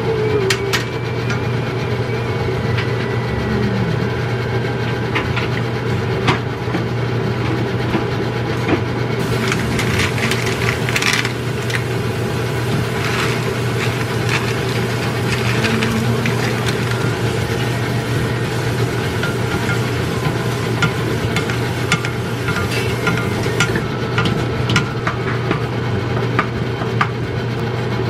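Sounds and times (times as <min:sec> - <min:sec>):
steady mechanical hum: 0:00.0 - 0:28.0
sauce simmering in a wok: 0:09.2 - 0:23.8.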